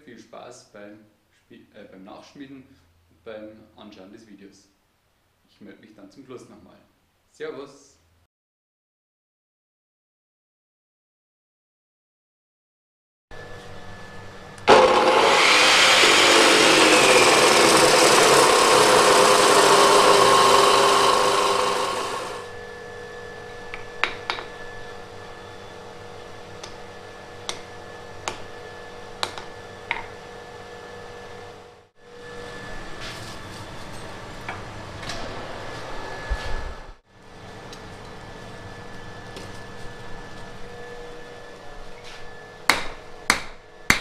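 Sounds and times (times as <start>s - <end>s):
loud rushing machine noise: 14.7s - 22.5s
hammer striking hot steel: 42.7s - 44.0s.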